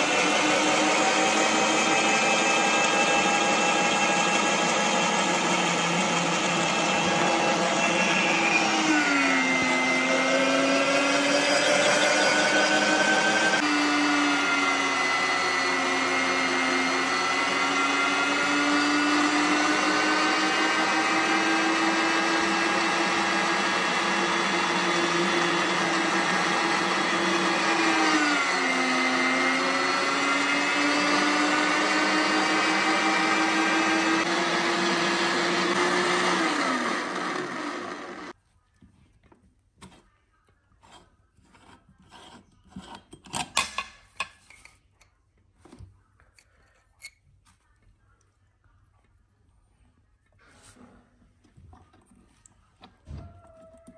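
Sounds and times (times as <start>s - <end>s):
meat grinder motor whining: 0.0s - 38.4s.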